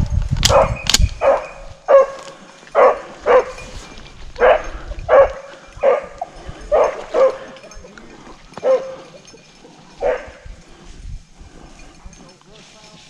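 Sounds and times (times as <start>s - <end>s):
dog barking: 0.5s - 2.2s, 2.8s - 3.6s, 4.4s - 7.6s, 8.6s - 9.2s, 10.0s - 10.4s.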